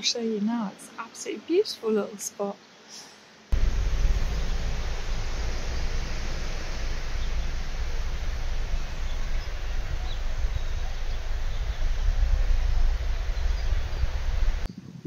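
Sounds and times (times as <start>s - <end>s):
wind buffeting microphone: 3.6s - 15.0s
faint bird chirps: 3.8s - 14.7s.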